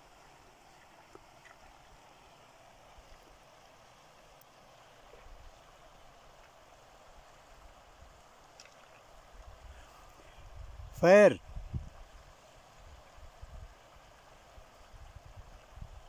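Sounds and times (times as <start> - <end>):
faint open-air hiss: 0.0 - 16.0
low wind rumble on microphone: 9.5 - 13.9, 14.5 - 16.0.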